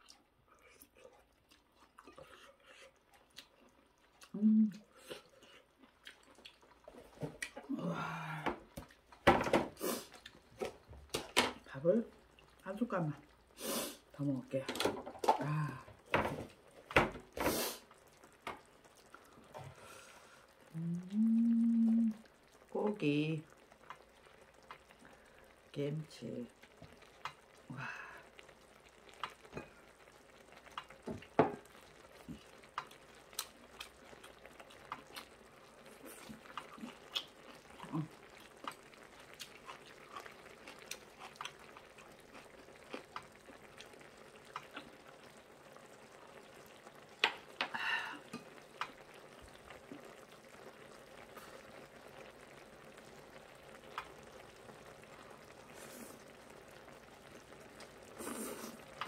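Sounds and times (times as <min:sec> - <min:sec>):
soft chewing: 0:00.0 - 0:07.7, 0:10.0 - 0:10.9, 0:17.9 - 0:22.6, 0:23.5 - 0:25.6, 0:28.3 - 0:45.8.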